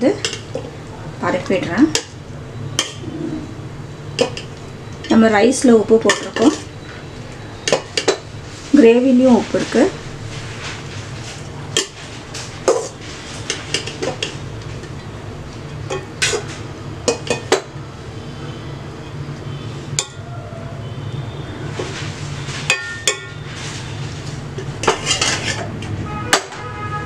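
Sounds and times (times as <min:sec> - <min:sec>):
metal ladle scraping metal pot: 0:21.9 - 0:25.7.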